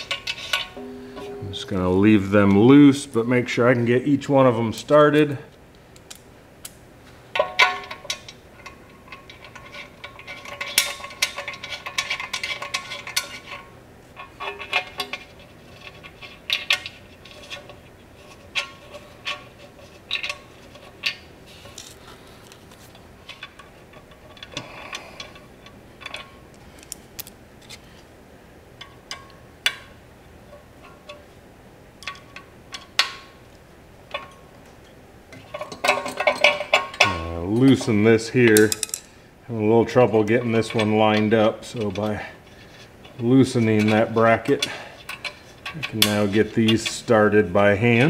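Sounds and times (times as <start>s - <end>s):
metal bolts clinking and rattling: 7.4s - 22.0s, 23.2s - 27.0s, 32.0s - 33.4s, 34.1s - 39.2s.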